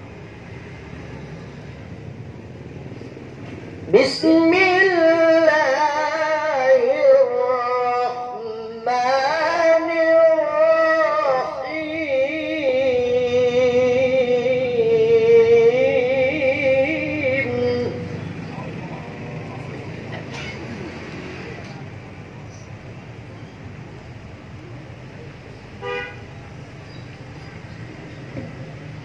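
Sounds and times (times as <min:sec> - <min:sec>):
man reciting melodically: 0:03.8 - 0:19.5.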